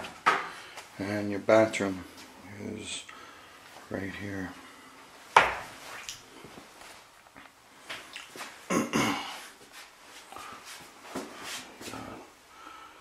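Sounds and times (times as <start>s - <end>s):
footsteps on tiles: 9.5s - 12.1s.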